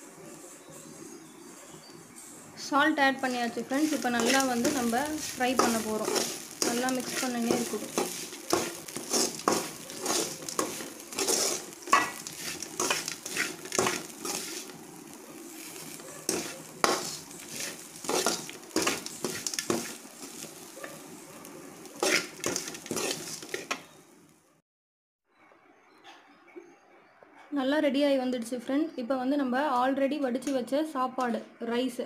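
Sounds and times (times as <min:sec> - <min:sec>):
faint sizzle: 0:00.0 - 0:24.5
spoon scraping metal pan: 0:03.0 - 0:14.8, 0:15.5 - 0:21.2, 0:21.9 - 0:23.9.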